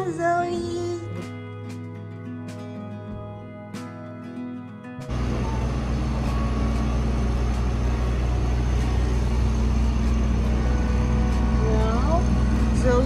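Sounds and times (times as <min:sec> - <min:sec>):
traffic engines rumbling: 0:05.1 - 0:13.0.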